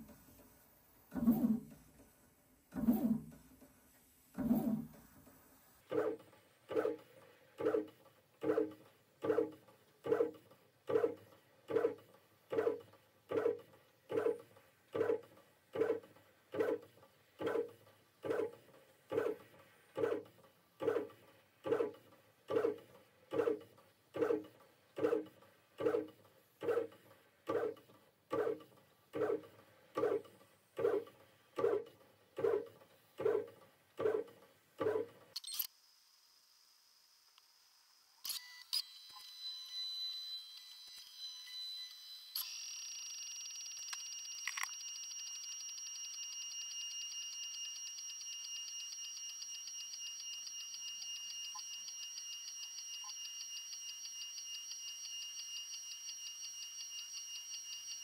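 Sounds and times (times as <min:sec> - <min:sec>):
three d printer stepper motor hum: 0:00.0 - 0:35.6.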